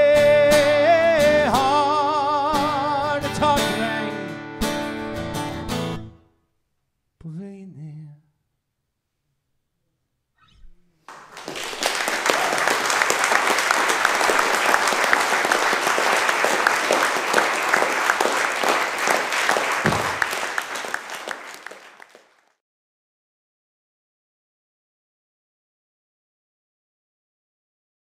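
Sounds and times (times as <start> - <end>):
audience applauding: 11.1 - 22.6.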